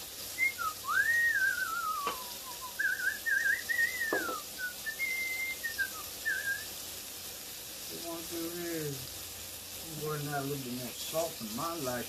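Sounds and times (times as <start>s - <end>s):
person whistling a tune: 0.4s - 6.7s
short knock: 4.1s - 4.4s.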